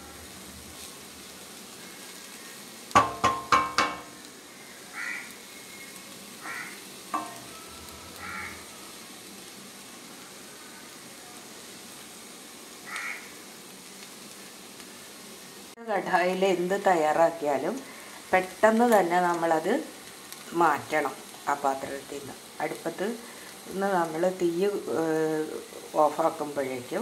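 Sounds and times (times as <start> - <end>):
food sizzling in a pan: 0.0 - 27.0
spatula knocking against pan: 3.0 - 4.1
crows cawing: 4.5 - 5.4, 6.4 - 6.8, 8.2 - 8.8, 12.8 - 13.4.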